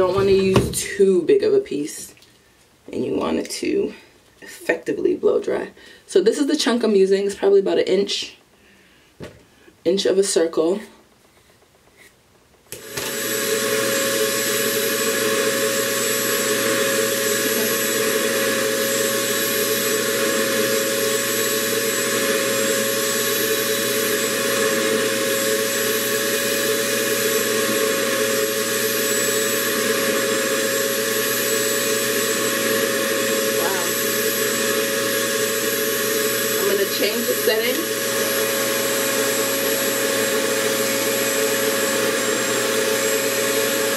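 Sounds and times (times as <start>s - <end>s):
hair dryer suction whine: 0.0s - 1.1s, 12.7s - 43.9s.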